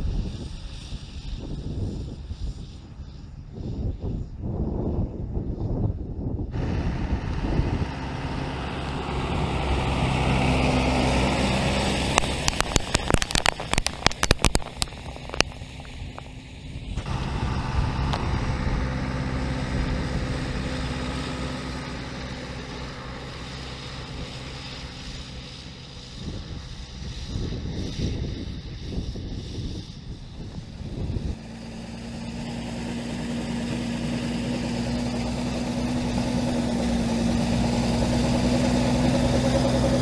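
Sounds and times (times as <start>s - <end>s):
tractor engine running: 0.0s - 4.4s, 5.6s - 40.0s
rapid sharp clicks and knocks: 12.1s - 16.4s.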